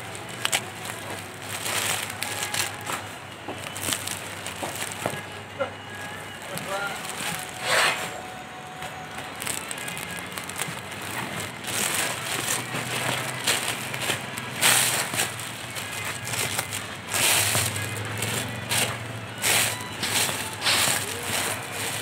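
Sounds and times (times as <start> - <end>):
cellophane crinkling: 0.0 - 22.0.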